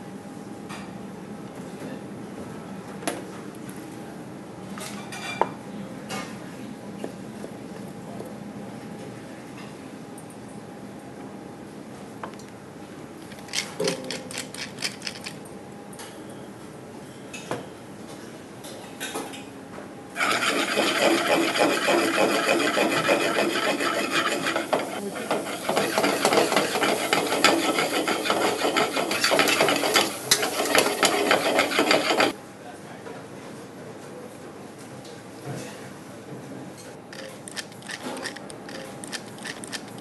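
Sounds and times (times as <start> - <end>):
saucepan scraping on metal stove: 20.2 - 32.4.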